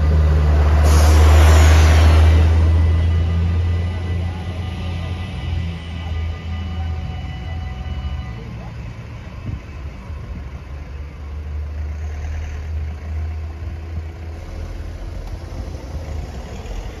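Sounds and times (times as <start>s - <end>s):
faint steady tones: 2.8s - 11.3s.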